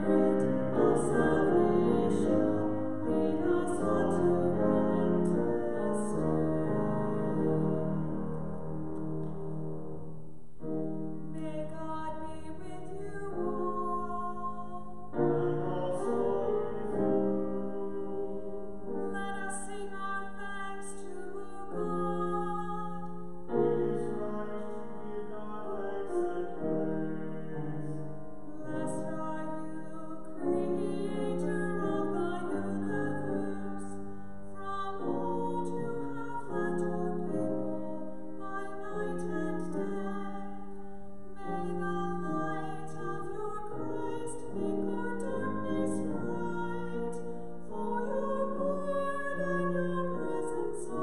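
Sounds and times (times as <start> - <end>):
woman singing: 0.0 - 8.3, 11.3 - 27.9, 28.5 - 51.0
grand piano chords: 0.0 - 51.0.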